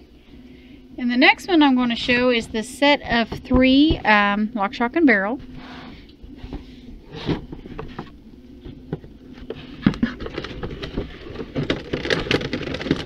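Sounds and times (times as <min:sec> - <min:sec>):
plastic packaging crinkling: 0:09.3 - 0:13.0.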